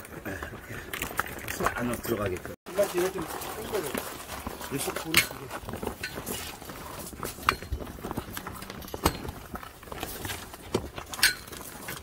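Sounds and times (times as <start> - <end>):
wire hooks clinking on metal pole: 11.2 - 11.5.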